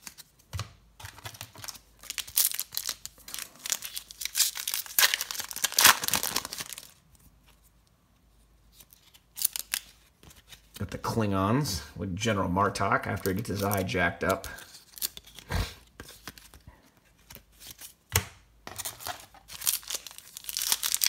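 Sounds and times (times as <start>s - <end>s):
wrapper tearing and crinkling: 1.3s - 7.0s, 8.7s - 10.8s, 13.2s - 16.6s, 18.8s - 21.0s.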